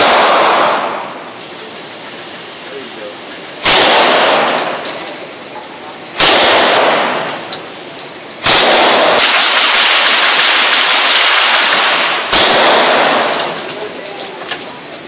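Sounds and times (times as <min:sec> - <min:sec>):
submachine gun bursts: 0:08.4 - 0:13.7.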